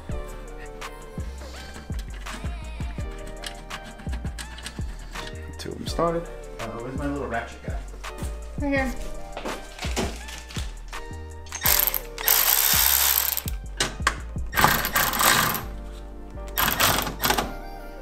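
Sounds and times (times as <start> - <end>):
background music: 0.0 - 18.0
cordless electric ratchet running: 11.5 - 13.6, 14.6 - 15.7, 16.6 - 17.4.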